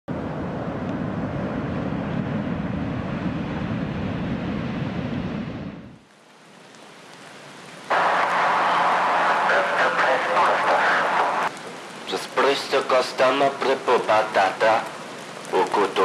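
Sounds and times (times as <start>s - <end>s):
ocean waves breaking: 7.7s - 16.0s.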